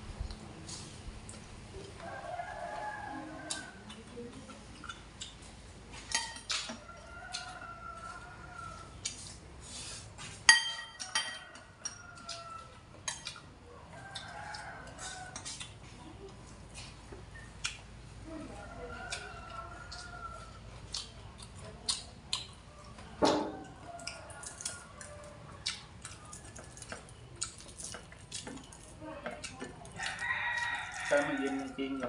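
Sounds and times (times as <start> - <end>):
utensils clinking on china bowls: 10.5 - 12.0, 30.9 - 32.0.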